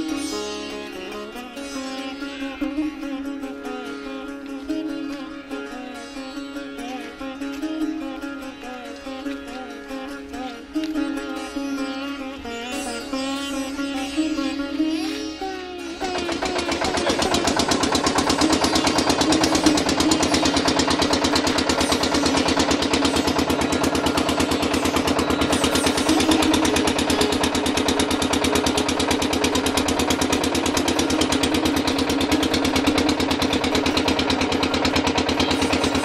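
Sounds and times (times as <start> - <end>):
motor boat engine chugging: 16.0 - 36.0.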